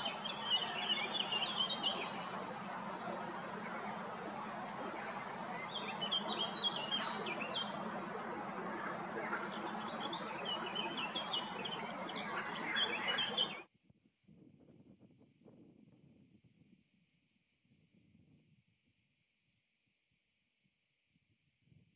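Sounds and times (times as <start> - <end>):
small birds chirping: 0.0 - 13.6
outdoor background hiss: 0.0 - 14.2.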